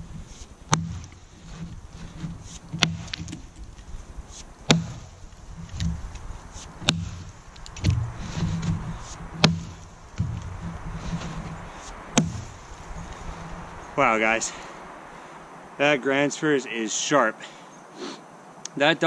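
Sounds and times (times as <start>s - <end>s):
axe chopping into log: 0.7s - 3.5s, 4.7s - 11.5s, 12.1s - 12.6s.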